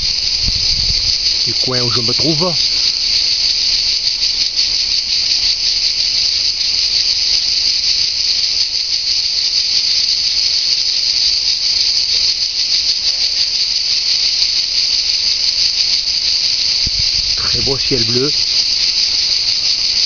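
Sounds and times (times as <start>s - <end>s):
cicadas buzzing: 0.0s - 20.0s.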